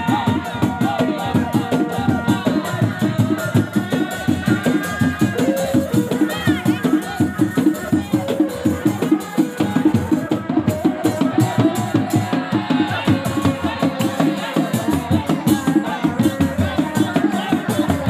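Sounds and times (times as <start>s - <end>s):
frame drums fast rhythm: 0.0s - 18.0s.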